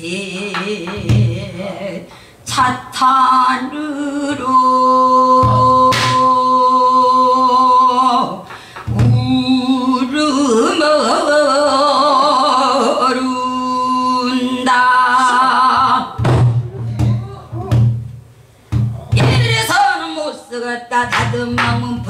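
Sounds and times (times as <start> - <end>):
woman singing long notes: 0.0 - 18.0, 18.9 - 22.0
barrel drum thump: 16.2 - 19.6.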